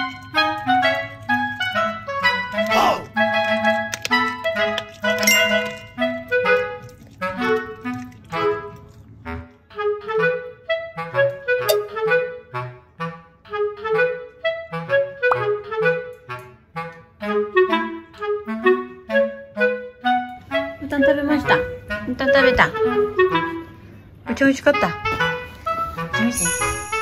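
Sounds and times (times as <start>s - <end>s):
bouncy background music: 9.6s - 23.7s, 24.3s - 27.0s.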